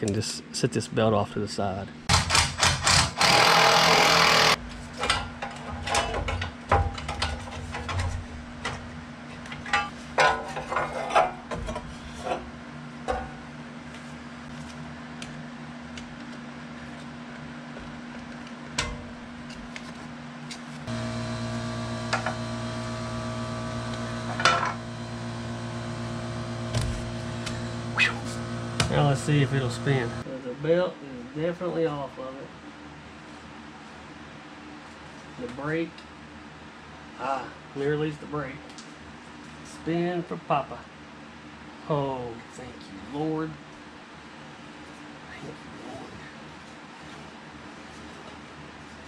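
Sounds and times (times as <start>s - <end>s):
loud steady drone: 20.9s - 30.2s
steady low hum: 20.9s - 30.5s.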